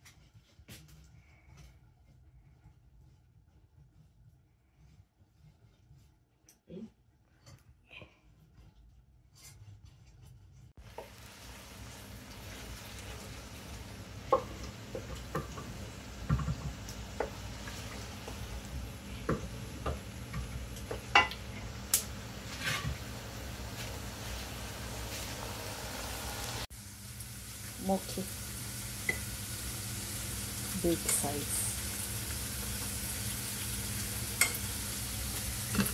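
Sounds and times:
wooden spoon scraping a pan: 0.0 - 6.6, 7.4 - 25.5
food sizzling in oil: 10.8 - 35.9.

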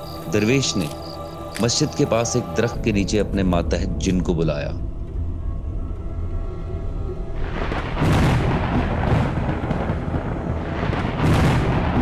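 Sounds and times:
dark background music: 0.0 - 12.0
thunder rumbling and crashing: 7.3 - 12.0.

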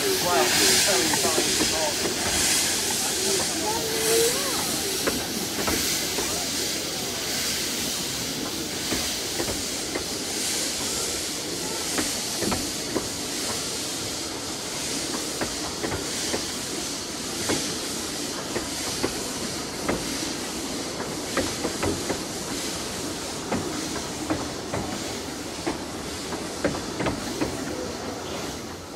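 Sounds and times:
locomotive exhaust beats: 0.0 - 10.9
steam locomotive hissing: 0.0 - 28.9.

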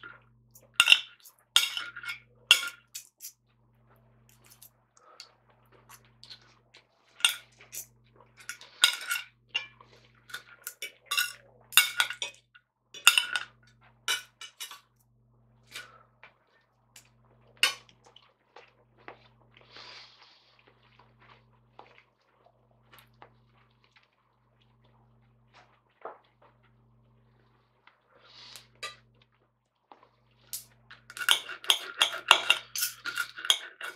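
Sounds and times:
cutlery clinking on a plate: 0.8 - 3.3, 7.2 - 12.4, 13.0 - 14.9, 31.1 - 33.9.

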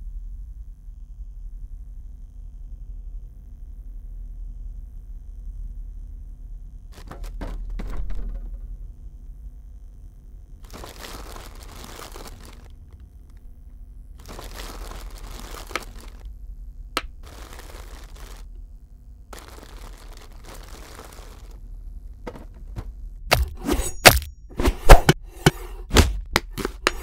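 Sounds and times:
low hum: 0.0 - 27.0
rustling and crinkling: 6.9 - 8.6, 10.6 - 13.1, 14.2 - 16.3, 17.0 - 18.6, 19.3 - 23.6, 24.8 - 27.0.

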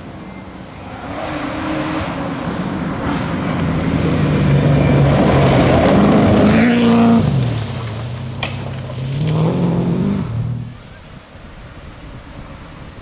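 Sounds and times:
rally car engine: 0.0 - 10.9
tyres rushing on loose gravel: 3.2 - 11.0.

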